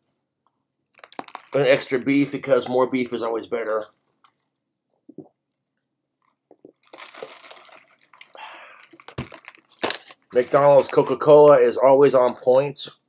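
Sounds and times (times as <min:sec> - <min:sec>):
breathy exhale: 0:08.3 - 0:08.8.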